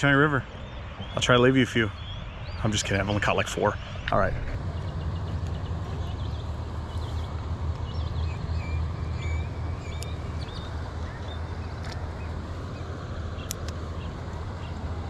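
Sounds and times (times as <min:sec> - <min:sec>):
birdlike chirps: 0:00.0 - 0:14.8
low outdoor rumble: 0:00.0 - 0:15.0
faint clicks: 0:09.9 - 0:10.2, 0:13.4 - 0:13.8.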